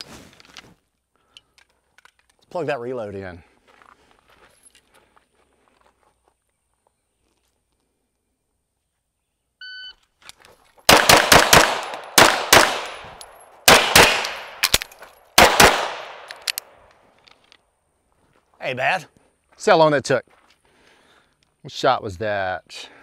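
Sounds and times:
pistol shots: 10.9s - 16.8s
faint pistol reloading clicks: 14.2s - 17.6s.

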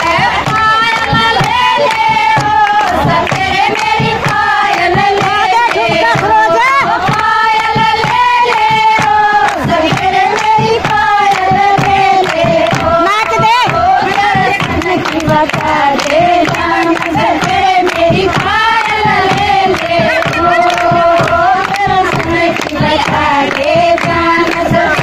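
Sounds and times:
steady percussive beat: 0.0s - 25.0s
women singing together: 0.0s - 25.0s.

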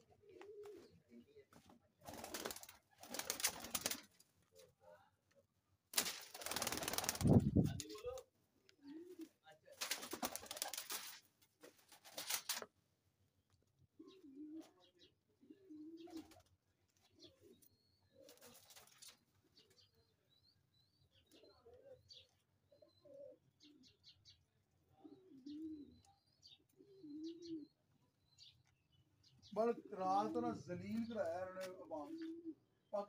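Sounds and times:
pigeons cooing: 0.0s - 1.3s, 14.0s - 20.0s, 21.2s - 28.5s, 32.0s - 32.9s
brief rustle: 12.0s - 12.7s
small birds chirping: 13.5s - 33.0s.

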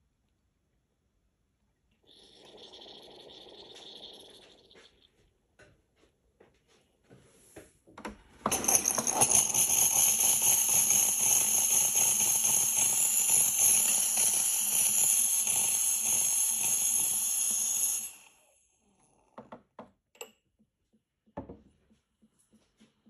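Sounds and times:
espresso steam wand hissing: 2.1s - 4.9s, 8.5s - 19.0s.

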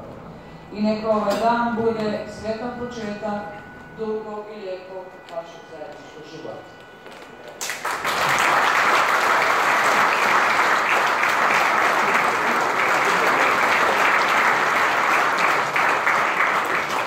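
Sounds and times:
guests applauding: 7.6s - 17.0s.

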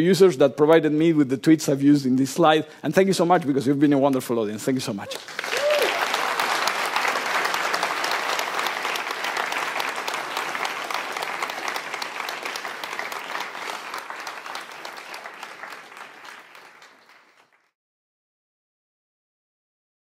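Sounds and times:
audience applauding: 5.0s - 17.7s.

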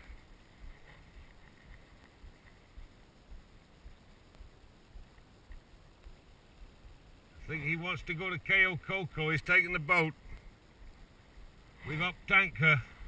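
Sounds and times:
soft low thumps: 0.0s - 7.5s.

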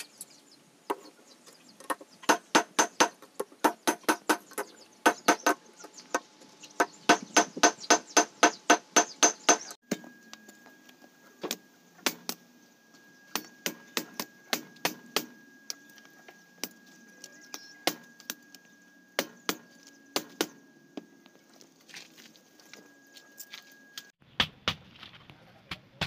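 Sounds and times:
hammer ringing on anvil: 13.1s - 20.6s.

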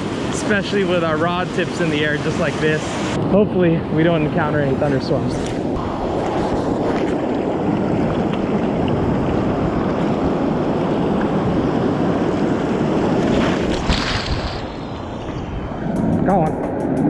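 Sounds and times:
breaking surf: 0.0s - 17.0s
wind buffeting microphone: 0.0s - 17.0s.

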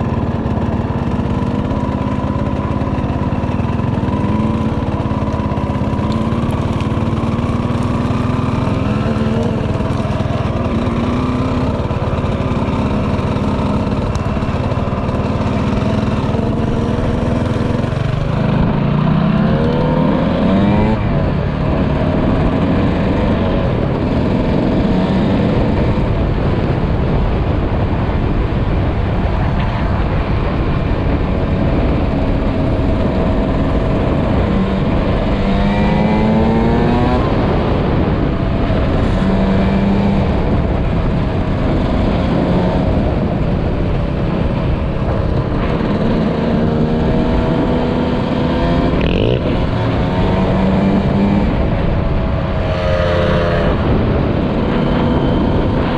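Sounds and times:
dirt bike engine revving: 45.1s - 55.9s.

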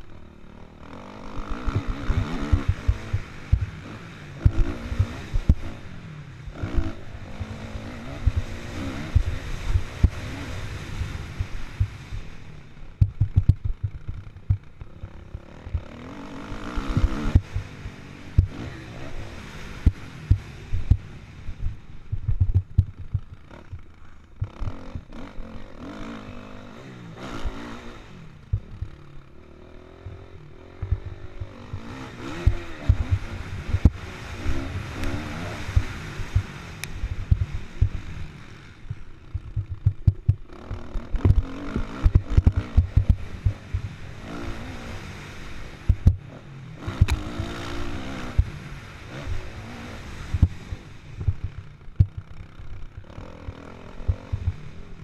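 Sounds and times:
motocross bike engine revving: 0.0s - 55.0s
low thumps and knocks from bumps: 13.0s - 14.9s, 18.3s - 18.6s, 19.8s - 25.1s, 30.8s - 34.0s, 37.3s - 38.0s, 38.9s - 40.5s, 41.1s - 43.9s, 45.9s - 46.2s, 51.2s - 52.3s, 54.0s - 54.7s.

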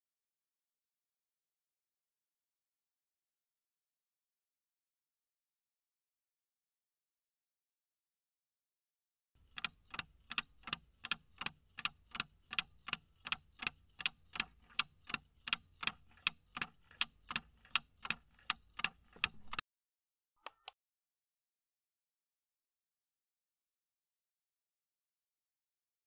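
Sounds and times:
clock ticking: 9.4s - 19.6s.

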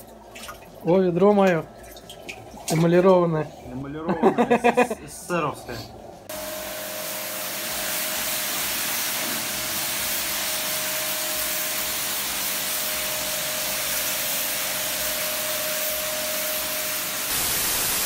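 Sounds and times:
water jet spraying: 6.3s - 18.0s.

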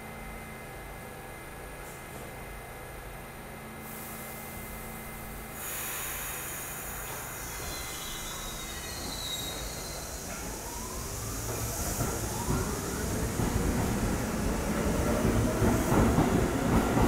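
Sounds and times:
air brakes hissing: 5.5s - 13.9s.

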